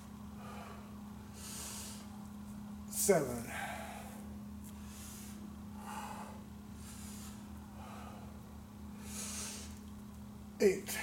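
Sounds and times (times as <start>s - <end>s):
steady low hum: 0.0s - 11.0s
man breathing hard: 0.3s - 2.2s, 3.4s - 9.8s.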